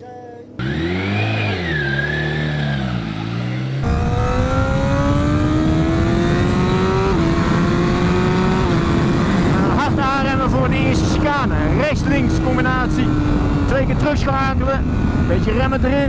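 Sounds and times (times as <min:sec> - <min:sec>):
racing motorcycle engine revving: 0:00.6 - 0:16.0
wind noise on microphone: 0:03.8 - 0:16.0.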